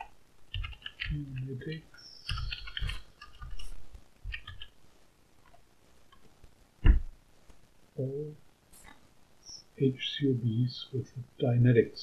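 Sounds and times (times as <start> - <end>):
computer keyboard typing: 0.0 - 4.8
loud thump: 6.8 - 7.2.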